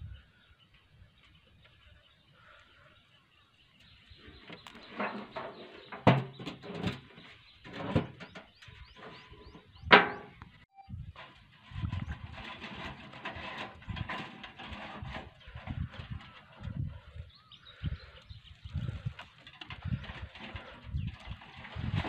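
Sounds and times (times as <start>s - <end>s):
metal drum knocking on wood: 9.9s - 10.4s.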